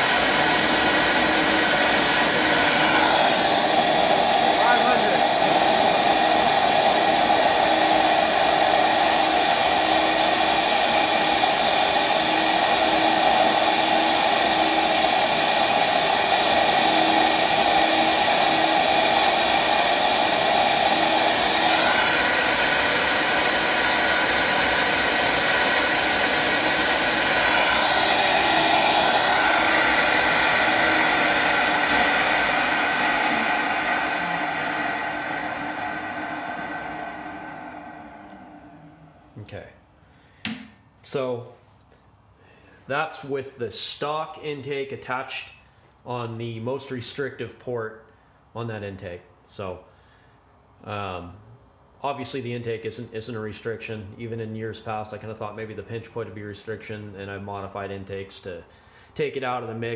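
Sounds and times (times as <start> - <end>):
vacuum motors whining: 0.0 - 39.4.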